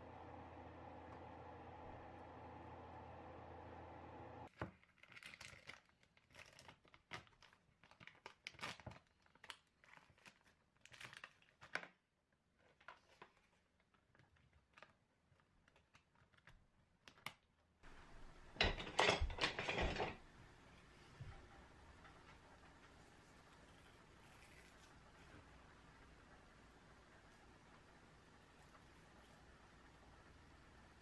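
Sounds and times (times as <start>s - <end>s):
plastic film crinkling: 4.5s - 17.6s
plastic clattering: 18.6s - 20.3s.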